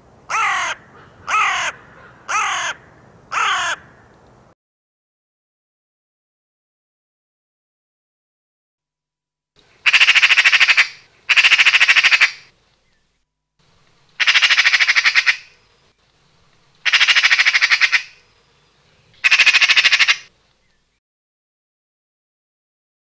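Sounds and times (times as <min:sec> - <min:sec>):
magpie chattering: 0:09.8 - 0:12.5, 0:14.2 - 0:15.6, 0:16.8 - 0:18.2, 0:19.2 - 0:20.3.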